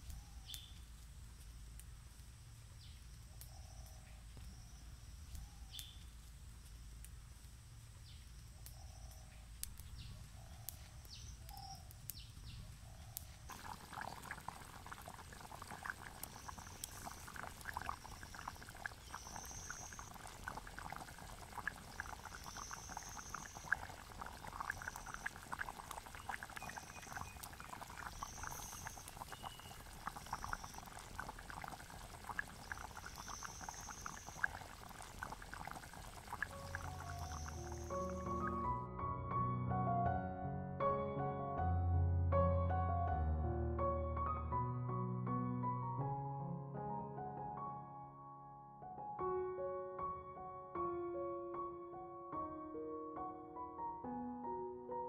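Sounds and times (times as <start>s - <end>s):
curry bubbling in pot: 13.5s - 38.7s.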